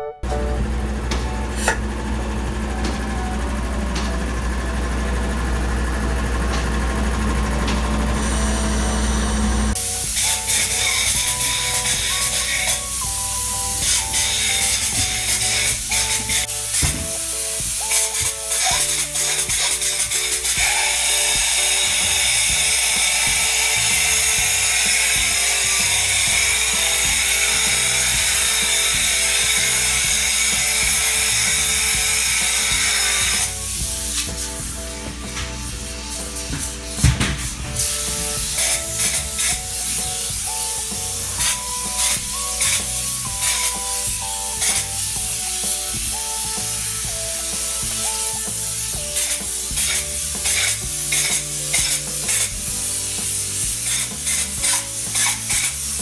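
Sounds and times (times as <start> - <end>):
background music: 0.0 - 56.0
machinery engine droning: 0.2 - 17.7
high hiss: 8.1 - 56.0.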